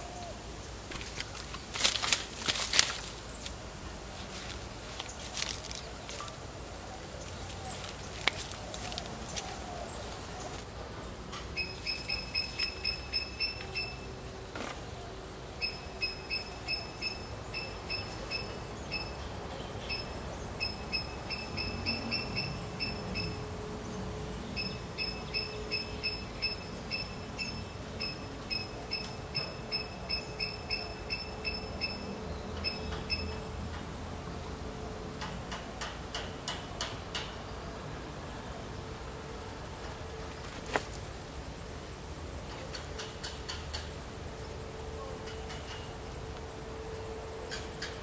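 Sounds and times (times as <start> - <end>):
rapid high chirps: 11.6 - 14.1.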